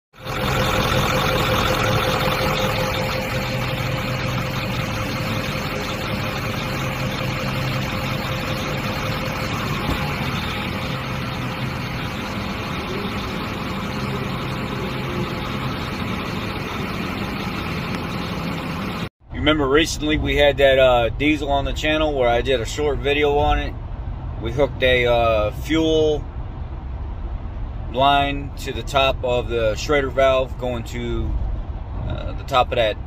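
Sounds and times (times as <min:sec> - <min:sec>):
diesel engine idling: 0:00.2 - 0:25.7.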